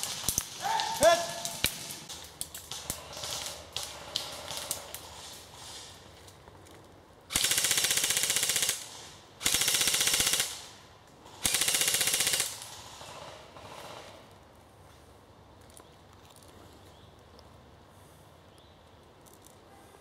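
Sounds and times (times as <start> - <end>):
airsoft rifle firing bursts: 7.3 - 10.7, 11.4 - 14.2.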